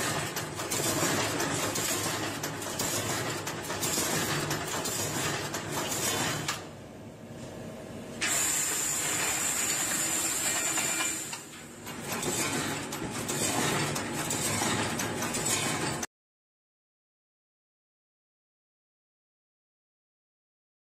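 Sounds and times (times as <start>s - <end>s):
welding machine clatter: 0.0s - 6.7s, 8.2s - 16.1s.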